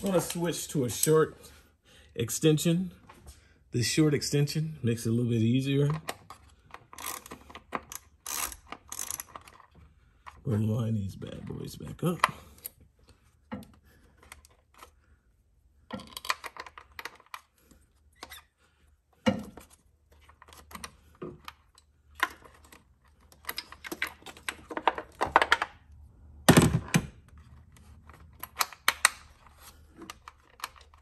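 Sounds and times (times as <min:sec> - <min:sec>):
plastic and metal clicks and rattles: 0:05.9 - 0:10.4, 0:15.9 - 0:17.5, 0:19.2 - 0:25.8, 0:26.6 - 0:31.0.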